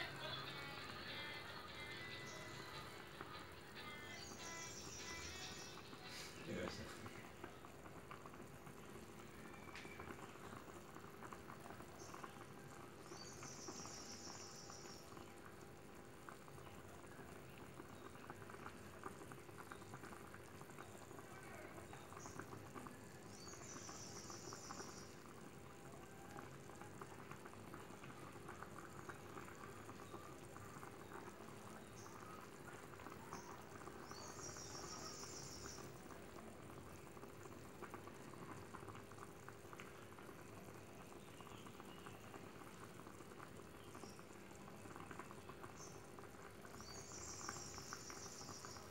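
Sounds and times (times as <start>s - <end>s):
thick gravy simmering in a wok: 0.0s - 48.9s.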